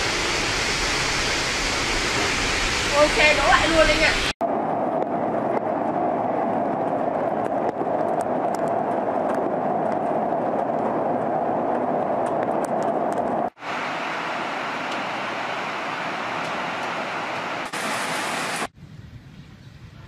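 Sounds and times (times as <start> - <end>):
heavy rain: 0.0 - 6.9, 13.5 - 18.7
storm wind: 0.0 - 20.0.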